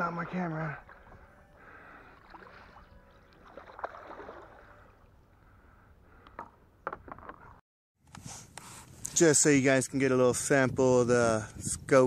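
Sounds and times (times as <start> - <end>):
water lapping and splashing: 0.0 - 5.3.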